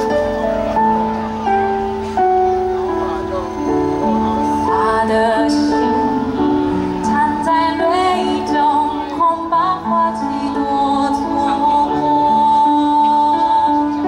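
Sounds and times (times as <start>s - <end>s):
instrumental accompaniment: 0.0s - 14.0s
woman singing: 4.4s - 14.0s.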